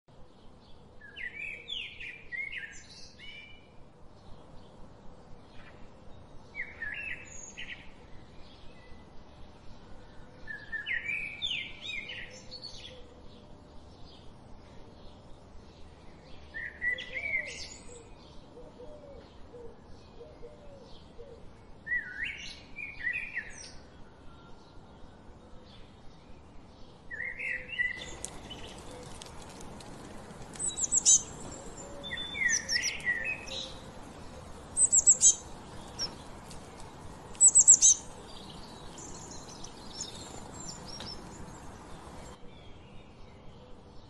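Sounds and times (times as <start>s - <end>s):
robin singing warbling phrases: 30.6s - 36.2s, 37.4s - 42.3s.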